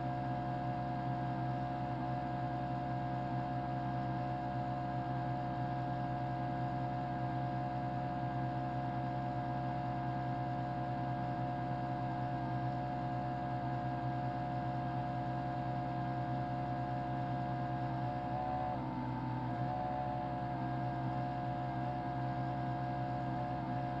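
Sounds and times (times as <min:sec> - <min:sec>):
motor hum: 0:17.7 - 0:24.0.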